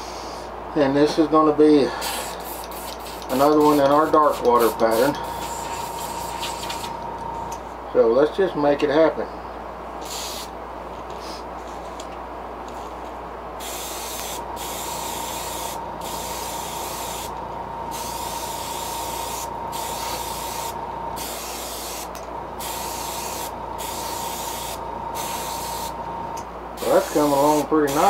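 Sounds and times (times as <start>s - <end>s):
faint steady whine: 0.0s - 28.0s
airbrush spraying hiss: 2.0s - 6.9s, 10.0s - 10.5s, 13.6s - 26.0s, 26.8s - 28.0s.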